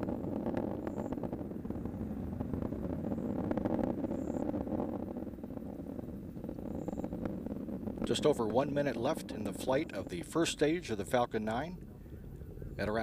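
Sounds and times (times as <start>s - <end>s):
rocket engines rumbling: 0.0s - 13.0s.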